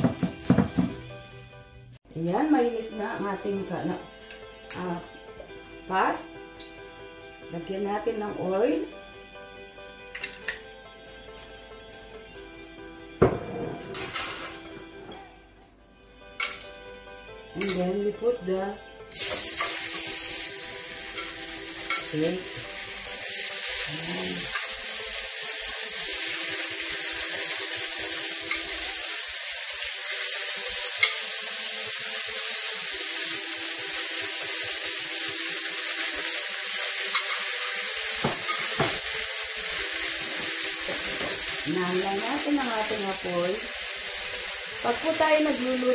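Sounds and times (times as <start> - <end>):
steaks sizzling in frying pan: 19.1 - 45.9.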